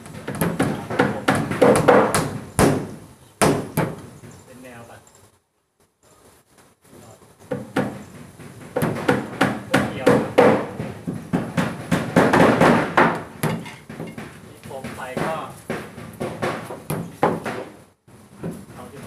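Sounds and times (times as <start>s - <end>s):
hammer knocking on plywood: 0.0s - 4.4s, 7.5s - 17.8s.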